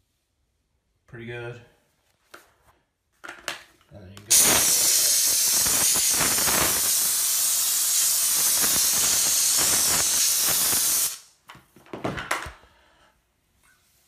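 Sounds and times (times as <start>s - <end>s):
steam cleaner nozzle hissing: 4.3s - 11.3s.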